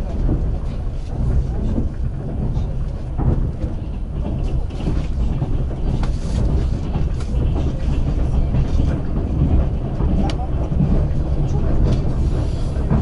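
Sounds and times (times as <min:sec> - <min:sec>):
train wheels rumbling on rail: 0:00.0 - 0:13.0.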